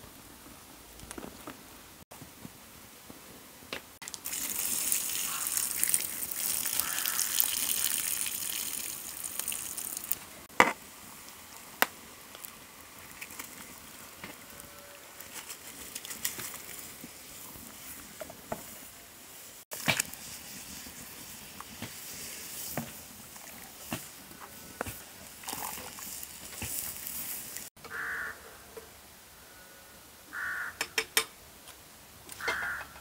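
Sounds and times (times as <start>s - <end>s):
liquid hissing in hot pot: 4.2s - 10.2s, 19.9s - 27.7s.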